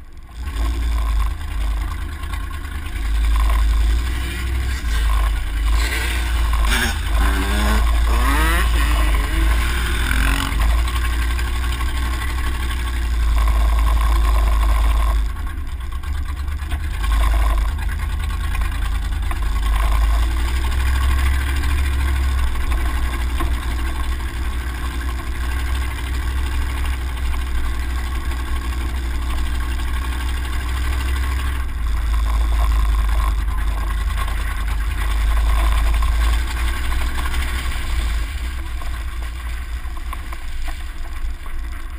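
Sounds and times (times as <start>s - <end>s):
off-road vehicle engine: 0.0s - 41.9s
dirt bike engine revving: 0.3s - 15.5s.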